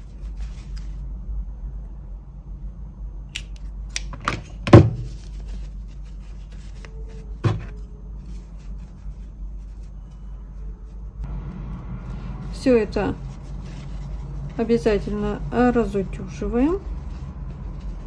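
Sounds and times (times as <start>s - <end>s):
fabric rustling: 0.0s - 1.0s, 4.9s - 11.1s, 12.1s - 18.0s
low steady hum: 0.0s - 18.0s.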